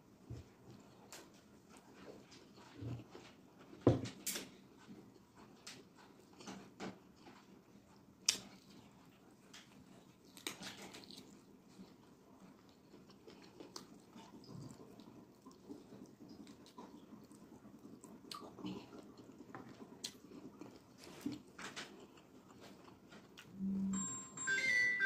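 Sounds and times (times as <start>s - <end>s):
wet chewing and lip smacking: 0.7s - 23.6s.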